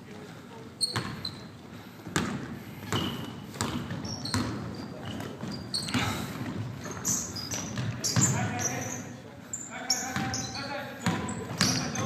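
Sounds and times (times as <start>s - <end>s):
sneakers squeaking: 0.8s - 12.0s
basketball bouncing on wooden floor: 2.1s - 8.4s, 10.2s - 10.4s, 11.0s - 12.0s.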